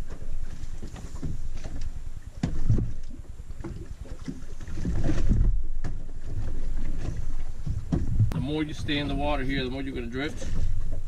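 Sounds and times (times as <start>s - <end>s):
knocks and clunks of gear: 0.0s - 8.4s
water lapping at boat hull: 0.0s - 11.0s
wind buffeting microphone: 4.7s - 11.0s.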